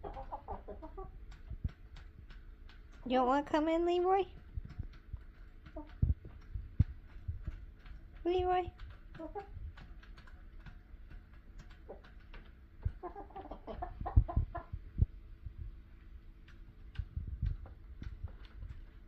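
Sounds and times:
hens clucking: 0.0 - 2.0, 5.0 - 7.6, 9.0 - 14.9.

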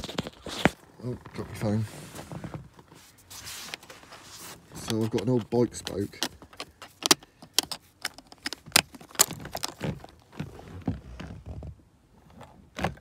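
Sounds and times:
bicycle spoke clicking in plastic latch: 4.9 - 9.7.

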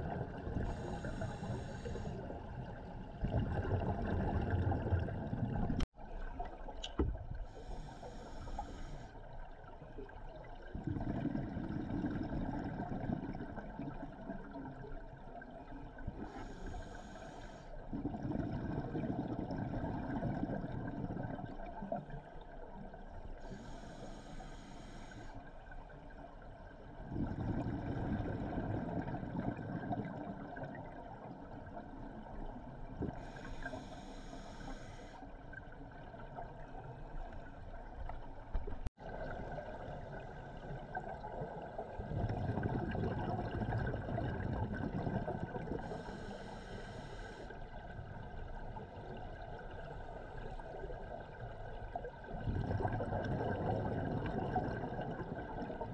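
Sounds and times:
hissing regulator inhalations: 0.6 - 2.4, 7.5 - 9.2, 16.3 - 17.8, 23.4 - 25.4, 33.1 - 35.3, 45.8 - 47.6
exhaled bubbles rushing: 2.3 - 6.6, 10.4 - 14.6, 17.9 - 21.8, 26.9 - 31.5, 38.8 - 45.9, 52.2 - 55.9.

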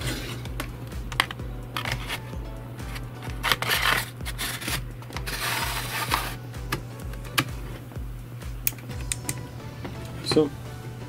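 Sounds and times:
metal caddy scraping: 0.0 - 0.6, 1.2 - 6.4.

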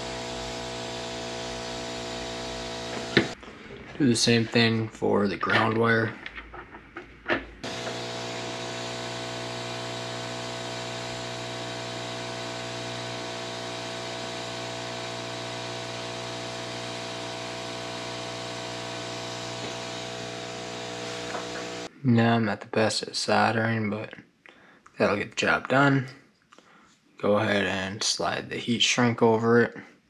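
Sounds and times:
electrical hum: 0.0 - 3.4, 7.6 - 21.9.

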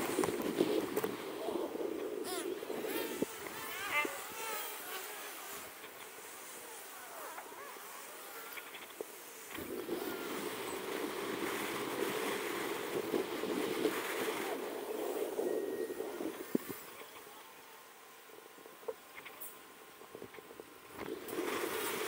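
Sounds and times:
wind on microphone: 0.0 - 6.3, 8.5 - 17.3, 20.0 - 22.0.

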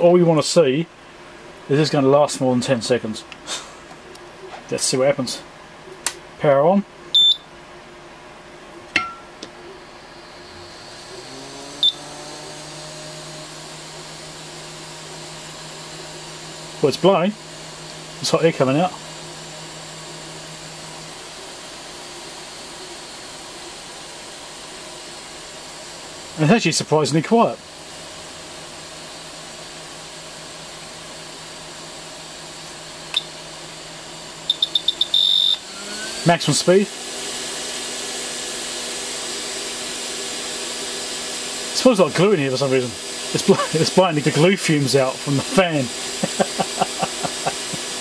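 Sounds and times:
air pump fan humming: 0.0 - 48.0
short beep: 7.2 - 7.4.

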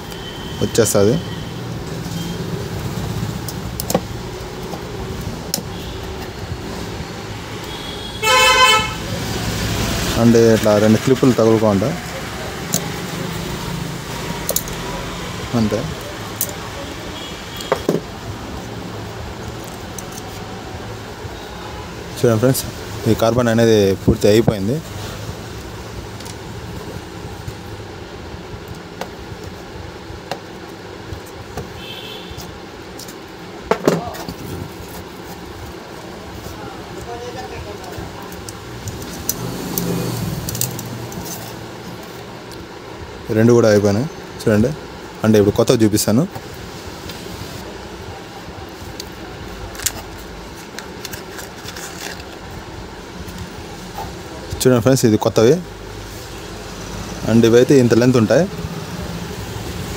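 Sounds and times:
packet clicks and rustles: 48.9 - 52.6.

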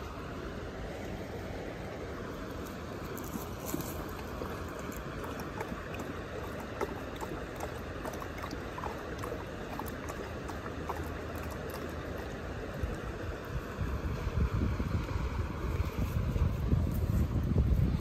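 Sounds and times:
flowing water: 0.0 - 18.0
dog lapping water: 3.4 - 13.4.

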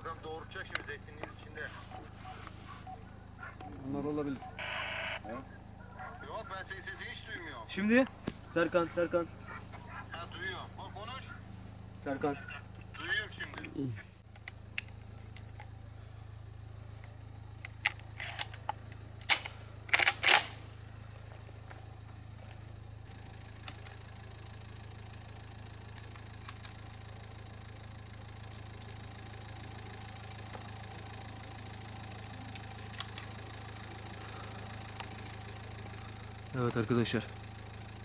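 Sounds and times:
vehicle engine idling: 0.0 - 38.0
shotgun action clacking: 19.2 - 20.6.

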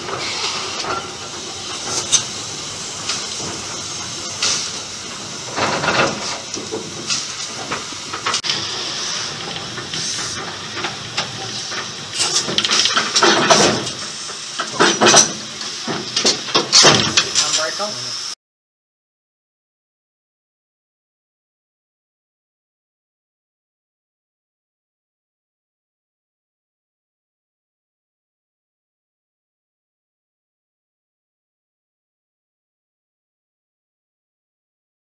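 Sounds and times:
steam locomotive hissing steam: 0.0 - 18.4.

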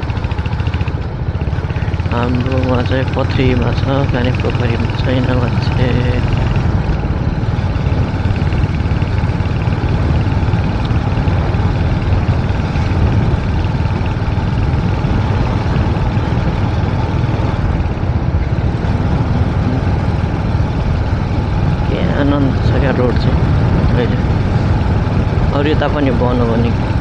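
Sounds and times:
motorcycle engine drone: 0.0 - 27.0
road noise: 0.0 - 27.0
wind rush: 0.0 - 27.0.

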